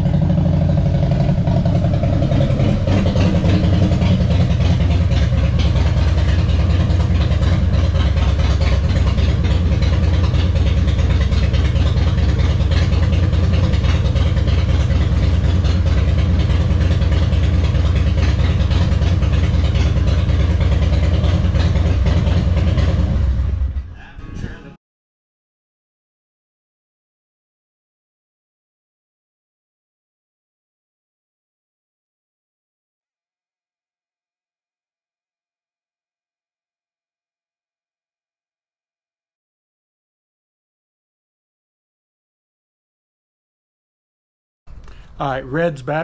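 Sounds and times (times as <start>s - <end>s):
motorcycle engine idling: 0.0s - 23.8s.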